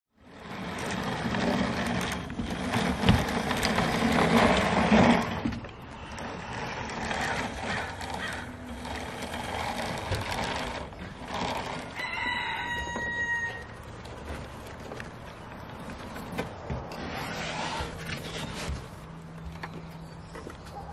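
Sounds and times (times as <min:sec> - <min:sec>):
toy street sweeper rolling and rattling: 0:00.2 - 0:15.0
rooster crowing: 0:12.0 - 0:13.8.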